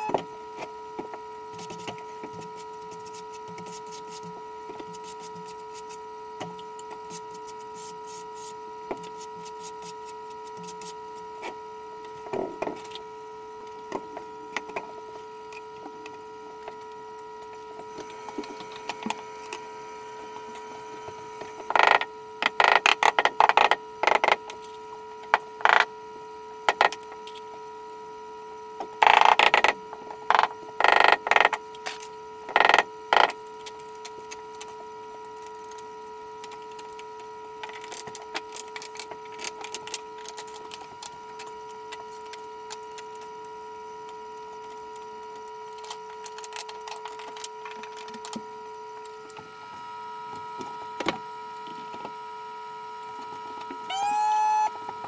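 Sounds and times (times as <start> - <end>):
vacuum tile lifter hum: 48.5 - 55.0.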